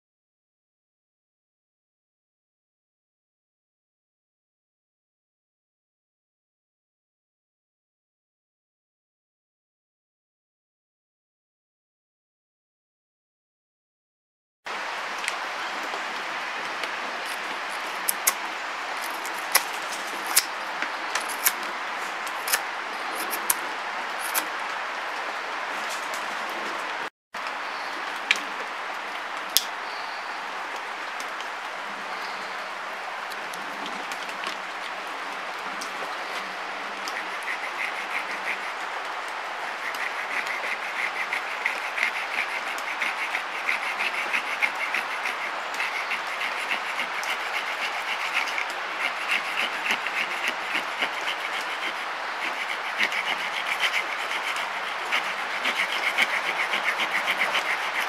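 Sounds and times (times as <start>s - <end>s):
knife scraping wood: 17.2s - 24.5s, 39.8s - 58.0s.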